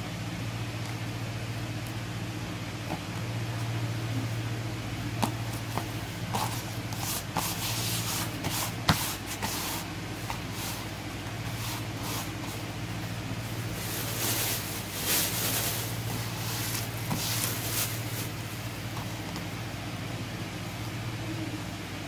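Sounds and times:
low hum and hiss: 0.0s - 22.0s
fabric rustling and patting: 5.2s - 12.8s, 13.4s - 19.5s.

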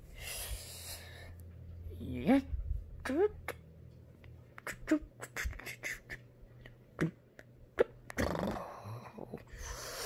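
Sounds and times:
reversed voice and mouth sounds: 4.5s - 10.0s.

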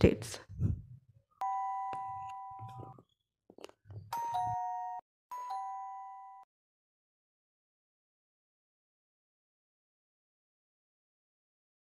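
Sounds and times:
two-tone doorbell chime: 1.4s - 3.0s, 4.2s - 6.5s.

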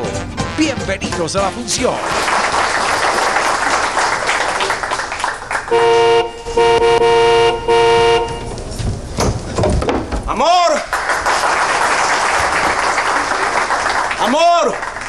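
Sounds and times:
car horn honking: 5.6s - 8.7s.

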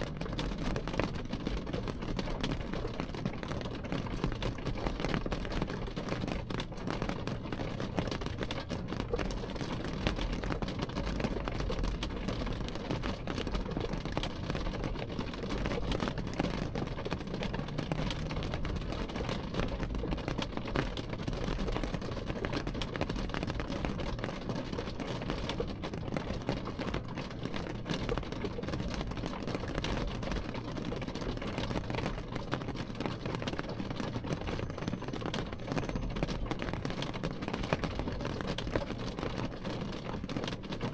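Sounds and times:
low constant rumble: 0.0s - 40.9s
rain on car window: 0.0s - 40.9s.

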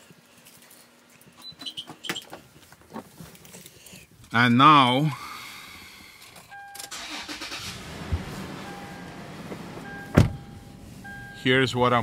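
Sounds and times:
car engine starting and running: 6.7s - 11.6s
loud thump: 9.5s - 10.4s
electronic beep: 9.8s - 11.5s.

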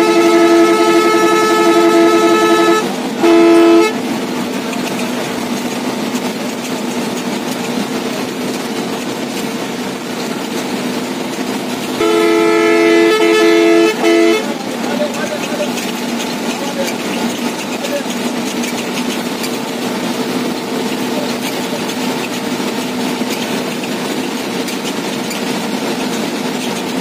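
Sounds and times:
two-note bus horn: 0.0s - 4.2s, 12.0s - 14.7s
bus engine: 0.0s - 27.0s
road noise: 0.0s - 27.0s.

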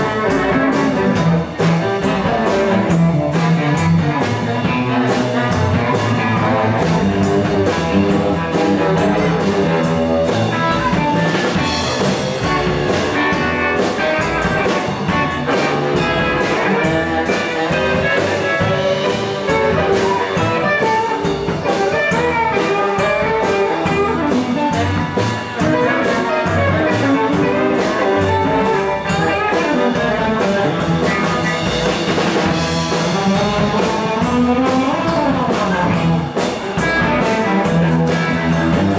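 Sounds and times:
drum kit: 0.0s - 38.9s
electric guitar: 0.0s - 38.9s
saxophone: 0.0s - 38.9s.

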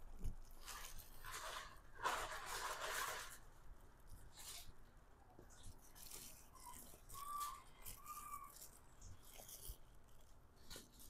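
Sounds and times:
chewing dried mushrooms: 5.5s - 11.0s
faint whistle-like tones: 6.5s - 8.5s.

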